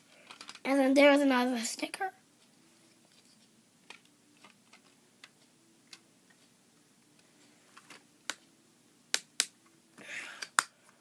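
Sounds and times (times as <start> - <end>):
plastic toy bricks clicking: 0.2 - 0.6.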